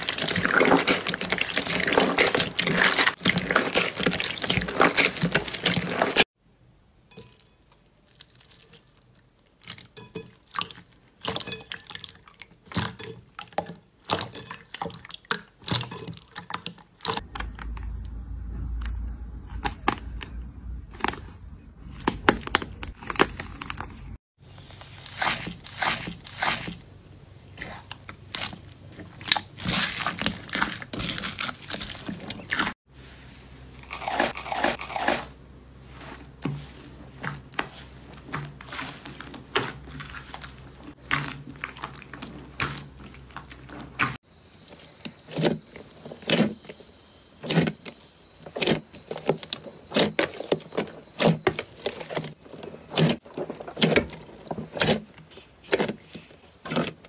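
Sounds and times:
slime wet squelches: 0.0 - 6.2, 37.1 - 46.5
crunchy slime crackling: 0.0 - 6.3, 27.6 - 32.8.

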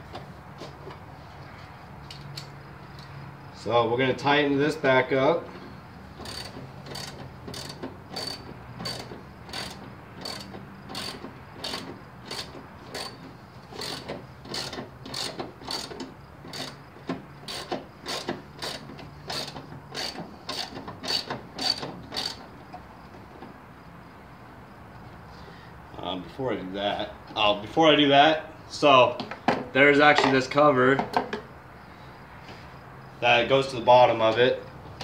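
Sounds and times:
ratchet wrench clicking: 6.2 - 16.8, 17.4 - 22.4.

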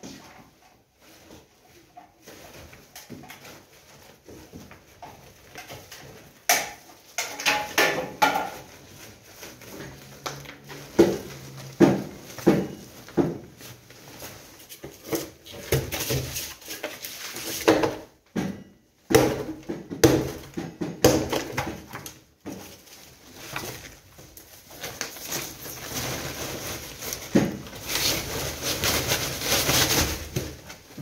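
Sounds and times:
sacks knocking and rustling: 0.0 - 31.0.

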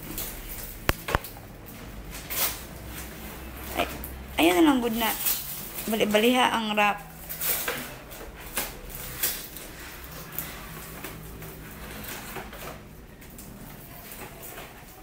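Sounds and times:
sharp paper crackles: 0.0 - 1.4, 4.8 - 15.0
wrapping paper rustling and tearing: 0.0 - 3.9, 4.5 - 15.0.

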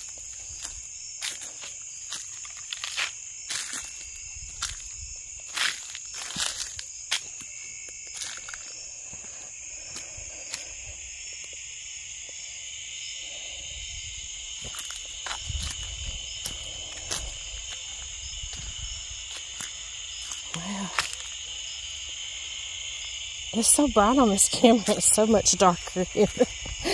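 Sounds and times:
footsteps on dry leaves: 0.0 - 10.8, 14.4 - 22.3
high-pitched insect chorus: 0.0 - 26.9.

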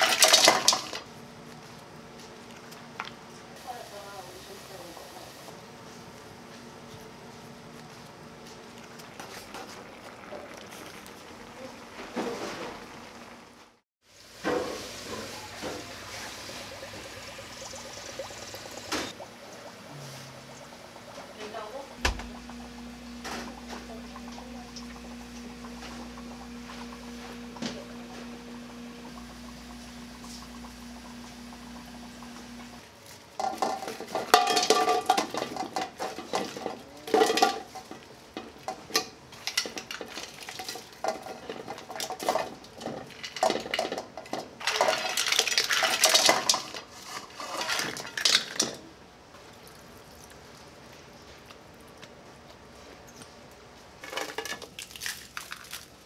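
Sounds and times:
machine hum: 15.6 - 32.8
shells clattering into a steel wok: 33.4 - 37.9, 41.0 - 46.8.

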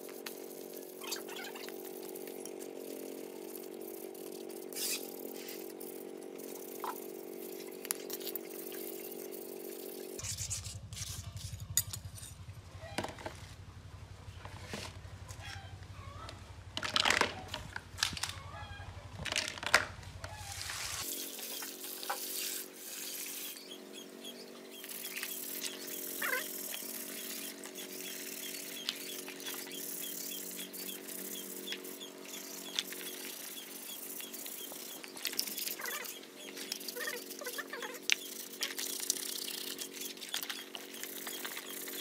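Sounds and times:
plastic wheels clattering in basin: 16.8 - 18.3, 19.2 - 19.9.

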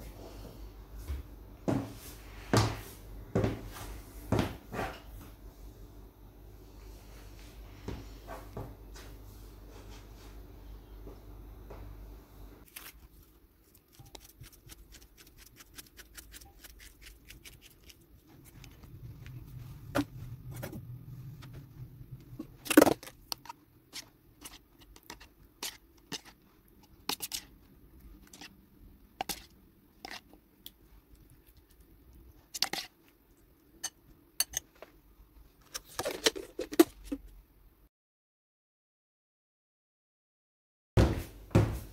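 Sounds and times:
bowls and spoon clicking and knocking: 33.8 - 34.7.

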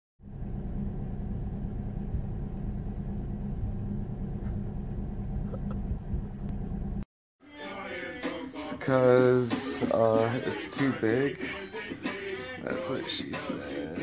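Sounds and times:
car rumbling: 0.2 - 7.0.

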